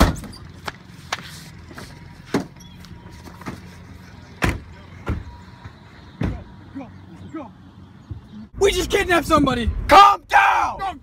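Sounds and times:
thumps and clicks of car doors: 0:04.4 - 0:06.5.

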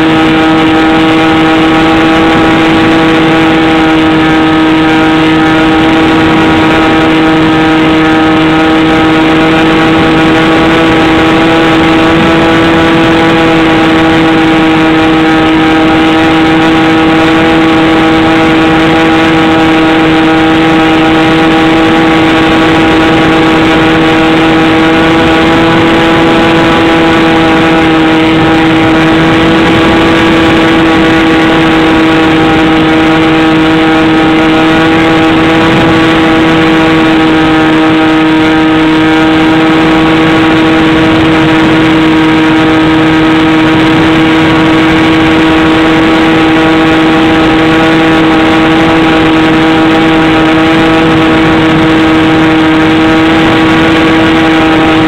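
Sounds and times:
model airplane motor drone: 0:00.0 - 0:55.0
wind rushing past microphone: 0:00.0 - 0:55.0.

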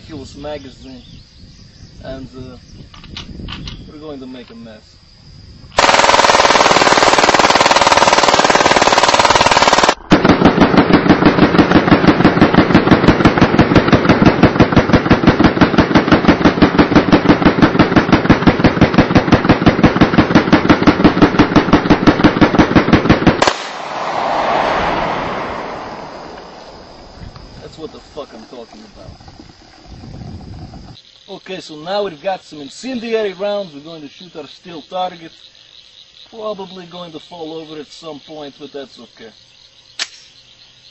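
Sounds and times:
pistol firing rapid bursts: 0:05.8 - 0:23.7.

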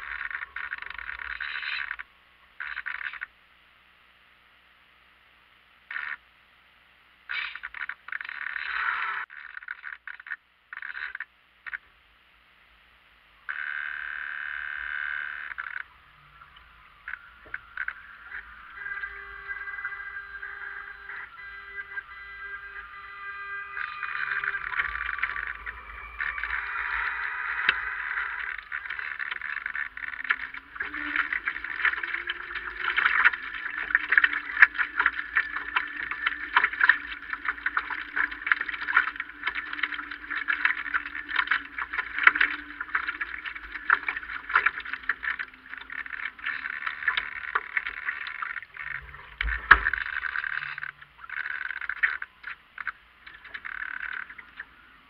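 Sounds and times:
water splashing along hull: 0:00.0 - 0:02.0, 0:13.5 - 0:55.0.

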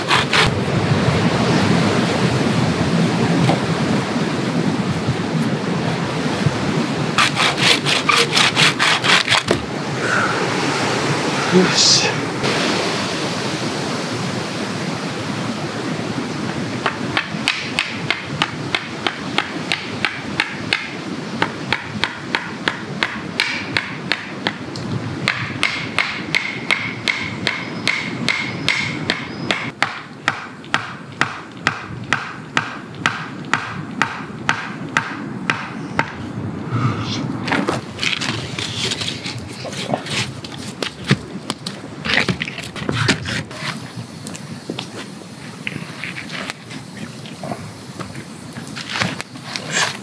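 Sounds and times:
hatchet knocking wooden stake: 0:00.0 - 0:00.6, 0:07.2 - 0:09.6, 0:16.8 - 0:24.6, 0:25.2 - 0:36.2
steady rushing background noise: 0:00.0 - 0:50.0.

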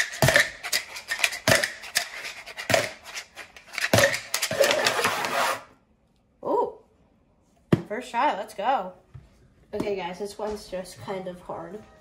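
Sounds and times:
cup scraping on wood: 0:00.0 - 0:05.7.

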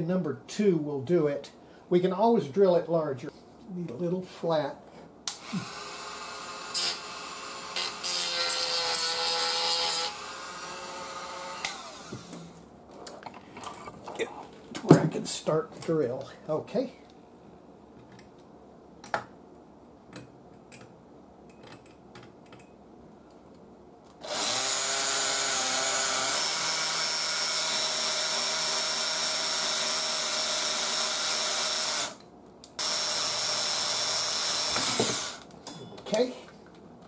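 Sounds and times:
electric drill whining: 0:05.3 - 0:12.6, 0:24.2 - 0:32.2, 0:32.8 - 0:35.5.

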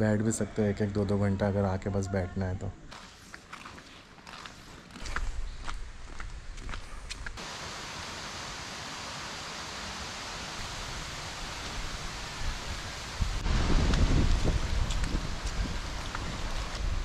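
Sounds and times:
footsteps on paved path: 0:02.9 - 0:07.4, 0:13.4 - 0:17.0
steady even hiss: 0:07.4 - 0:17.0.

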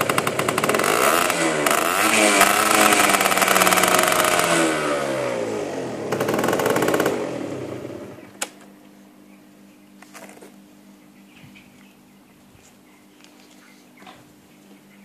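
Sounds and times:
scooter engine revving: 0:00.0 - 0:08.4.

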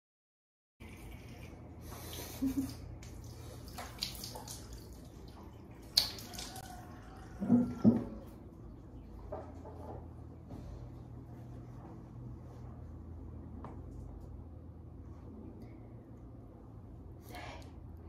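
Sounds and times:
water splashing at a sink: 0:00.8 - 0:08.7.

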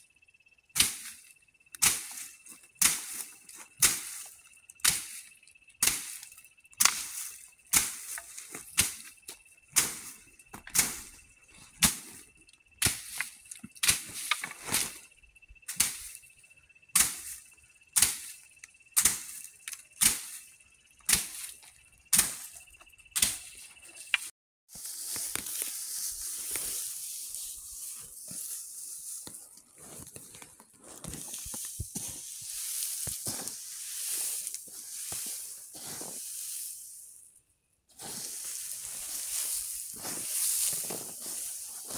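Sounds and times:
faint steady high tone: 0:00.0 - 0:24.3
stick whacking dry plants: 0:00.7 - 0:16.3, 0:16.9 - 0:30.4, 0:31.0 - 0:36.6, 0:38.0 - 0:41.9
dry pods rustling by hand: 0:23.8 - 0:37.3, 0:37.9 - 0:41.9.

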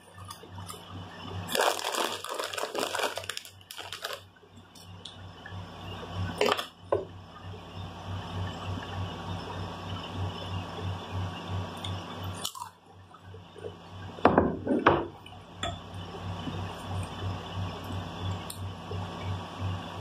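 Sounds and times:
chewing chips: 0:01.5 - 0:04.2, 0:12.4 - 0:12.8.

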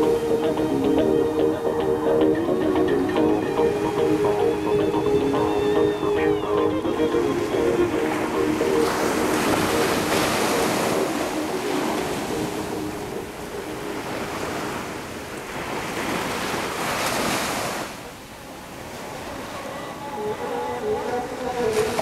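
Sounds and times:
waves breaking on sand: 0:07.2 - 0:19.8.

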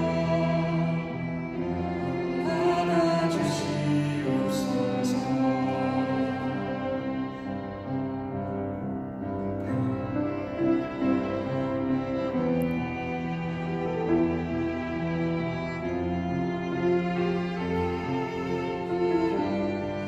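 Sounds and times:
person singing a hymn: 0:00.0 - 0:12.7
violin: 0:00.0 - 0:20.0.

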